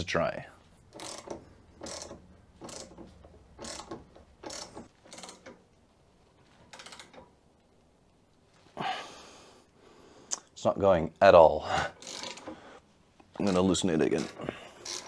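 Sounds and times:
ratchet wrench clicking: 0:00.9 - 0:05.6, 0:12.0 - 0:12.6, 0:13.5 - 0:15.0.

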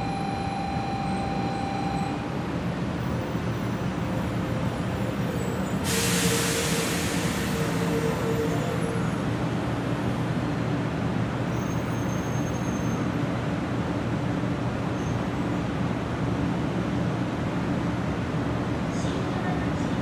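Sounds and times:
high train whine: 0:00.0 - 0:11.4
train low hum and rumble: 0:00.0 - 0:20.0.

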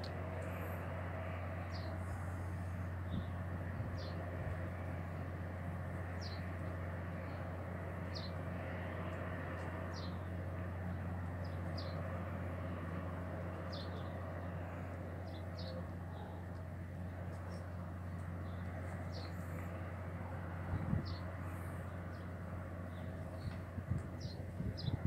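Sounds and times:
steady low hum: 0:00.0 - 0:25.0
small birds chirping: 0:13.5 - 0:25.0.

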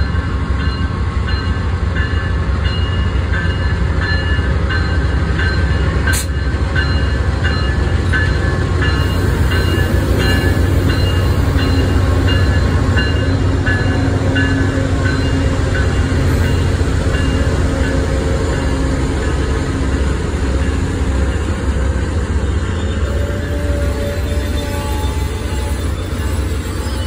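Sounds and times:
diesel locomotive rumble: 0:00.0 - 0:27.0.

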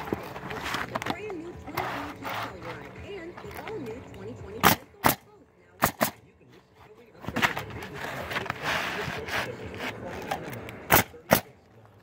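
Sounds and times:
shingles rustling and scraping: 0:00.0 - 0:03.8, 0:06.7 - 0:10.6
nail gun firing: 0:04.6 - 0:05.2, 0:05.8 - 0:06.2, 0:10.9 - 0:11.5.

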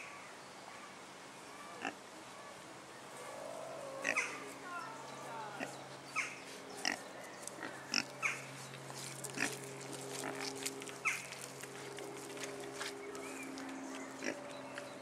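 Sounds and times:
steady low hum: 0:03.0 - 0:15.0
pigs grunting and squealing: 0:03.4 - 0:04.5.

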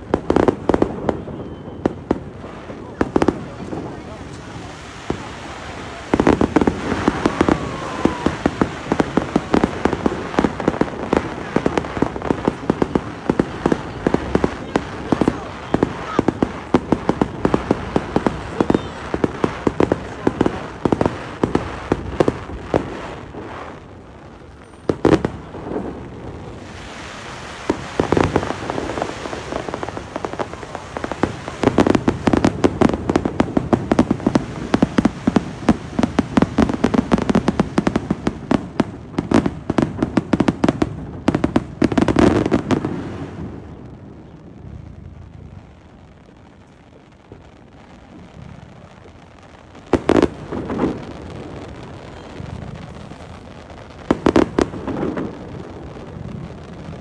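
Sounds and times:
loud firework bang: 0:00.0 - 0:23.0
fireworks crackling: 0:00.0 - 0:57.0.

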